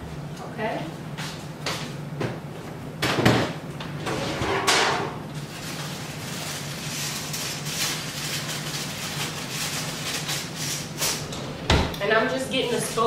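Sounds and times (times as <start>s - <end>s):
steady low hum: 0.0s - 13.0s
drawer sliding and rattling: 11.2s - 12.0s
drawer opening with a knock: 11.3s - 12.0s.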